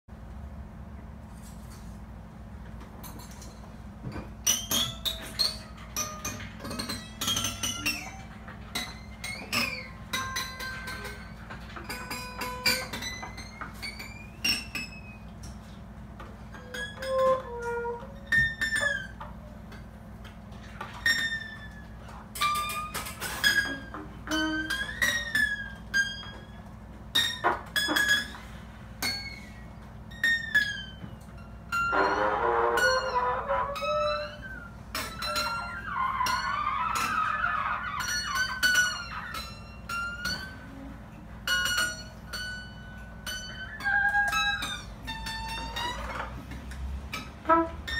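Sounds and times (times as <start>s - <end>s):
trumpet sliding high tones: 17.0s - 18.2s, 31.9s - 39.3s, 47.4s - 47.9s.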